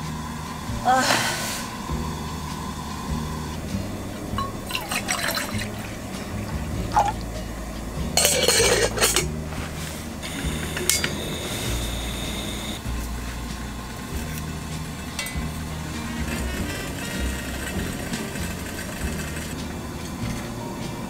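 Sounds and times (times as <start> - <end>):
soft background music: 0.0 - 21.0
glass clinking: 4.4 - 7.4, 8.1 - 9.4, 10.8 - 11.3, 15.1 - 15.5
liquid pouring: 4.4 - 7.4.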